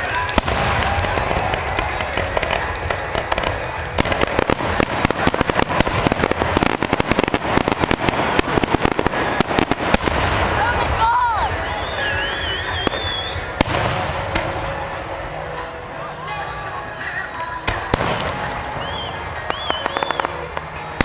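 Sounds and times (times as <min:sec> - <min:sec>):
rapid crackling pops: 0:00.0 - 0:10.8
firework bang: 0:00.0 - 0:10.9.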